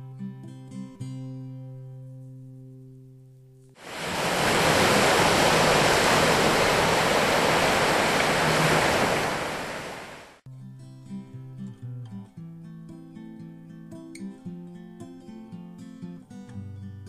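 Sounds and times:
small waves breaking on beach: 0:03.8 - 0:10.4.

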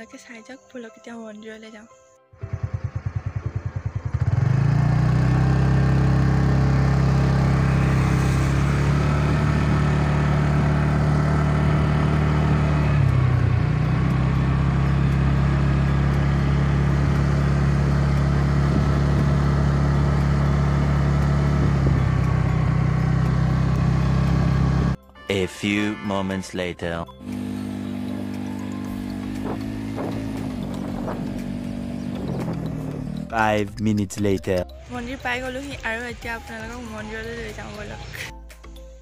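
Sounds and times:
scooter engine running: 0:02.4 - 0:25.0, 0:27.2 - 0:33.5.

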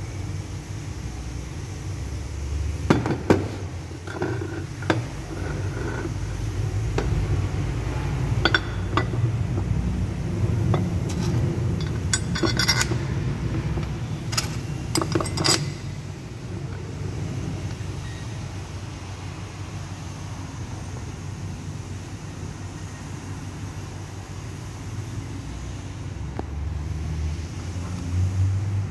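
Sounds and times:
metal parts clinking: 0:08.4 - 0:09.3, 0:10.7 - 0:13.2, 0:13.8 - 0:16.0.

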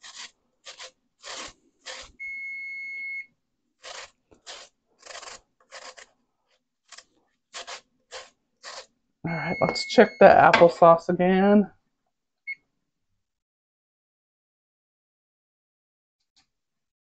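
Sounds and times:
potato rasping on grater: 0:00.0 - 0:02.2, 0:03.8 - 0:06.2, 0:06.8 - 0:09.0
electronic beep: 0:09.3 - 0:10.6.

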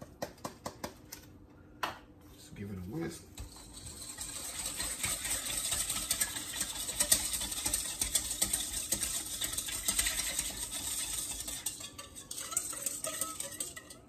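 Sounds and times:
whisk beating in metal bowl: 0:03.0 - 0:14.0.

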